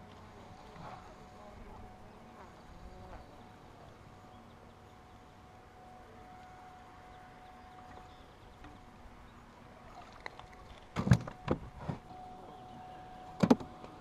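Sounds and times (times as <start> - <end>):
faint thin whine: 0.0 - 14.0
knocks against aluminum boat: 11.0 - 12.0.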